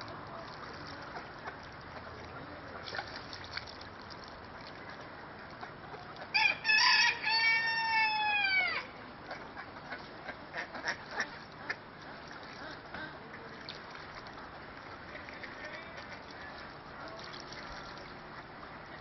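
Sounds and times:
low background noise: 0.0s - 19.0s
rooster crowing: 6.3s - 8.9s.

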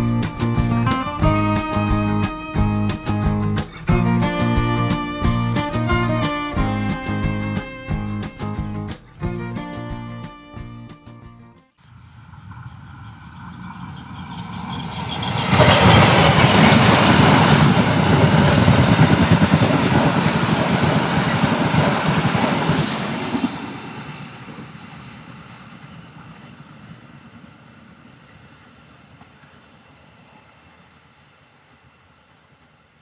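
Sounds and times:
train passing: 0.0s - 11.2s, 11.8s - 33.0s
wheels rattling over rails: 12.0s - 25.0s.

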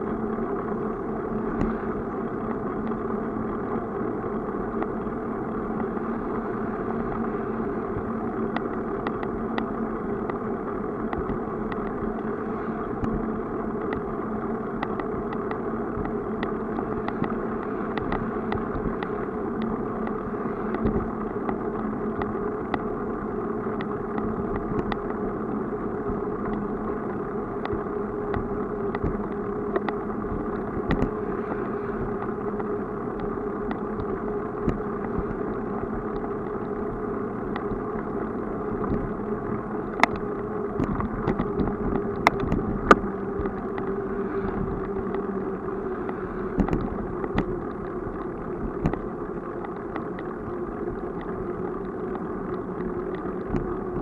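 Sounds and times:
bicycle tyres humming on asphalt: 0.0s - 54.0s
bicycle rattling over bumps: 32.0s - 54.0s.

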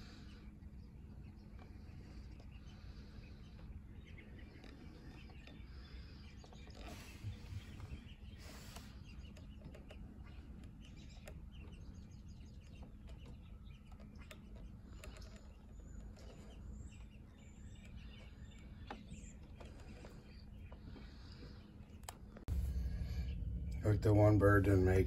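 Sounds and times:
low background rumble: 0.0s - 25.0s
songbirds chirping: 0.0s - 25.0s.

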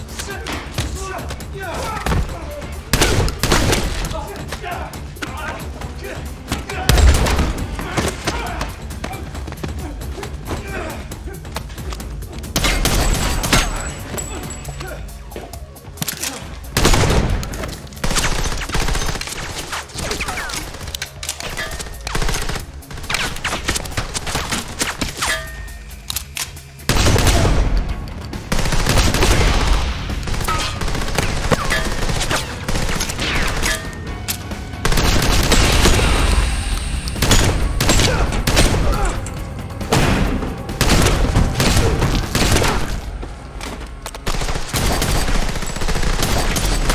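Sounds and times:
film score: 0.0s - 46.9s
rapid gunshots: 2.0s - 4.3s, 16.7s - 25.2s, 28.4s - 33.9s, 34.8s - 36.6s, 37.2s - 39.2s, 39.9s - 43.0s, 44.2s - 46.9s.

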